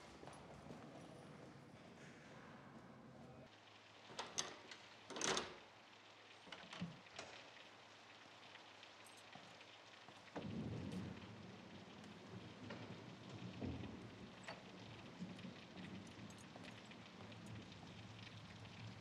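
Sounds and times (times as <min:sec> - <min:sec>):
rain falling steadily: 0:03.4 - 0:19.0
low rumble of thunder: 0:10.2 - 0:19.0.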